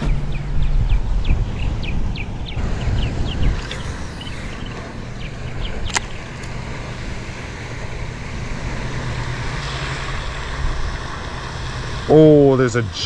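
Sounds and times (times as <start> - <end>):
steady low rumble: 0.0 - 13.0
sharp click: 5.7 - 6.6.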